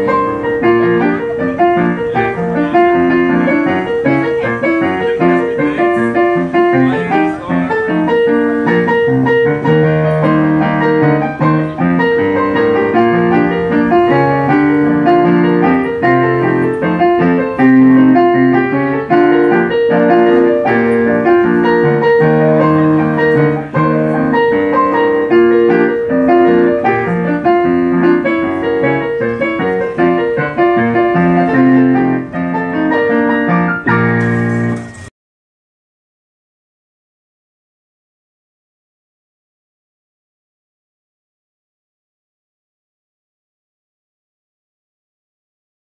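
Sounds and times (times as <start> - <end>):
ragtime solo piano: 0.0 - 35.1.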